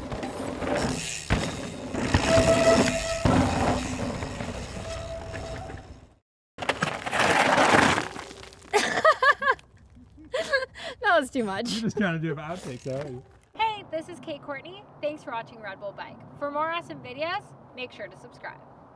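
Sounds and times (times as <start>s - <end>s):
bike knocking over bumps: 0.0s - 6.0s
short squeals: 2.0s - 6.0s
tyres crunching over gravel: 6.7s - 9.1s
woman laughing: 8.7s - 12.1s.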